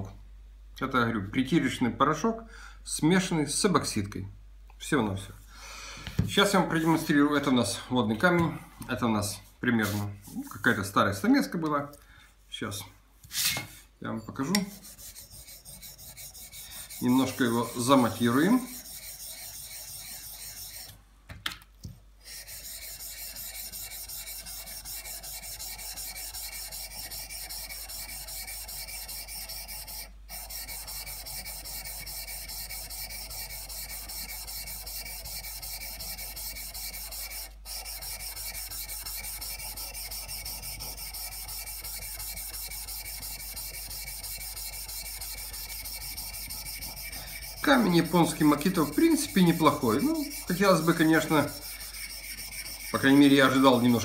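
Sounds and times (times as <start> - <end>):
chisel scraping on wet whetstone: 14.6 - 21.0, 22.3 - 54.0.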